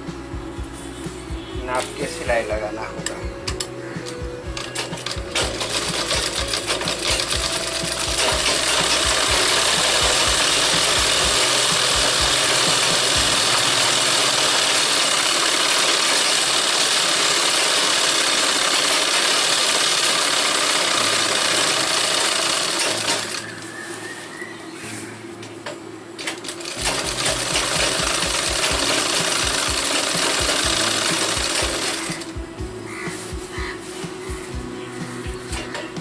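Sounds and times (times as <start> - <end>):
sewing machine stitching: 4.6 - 23.5, 26.2 - 32.3.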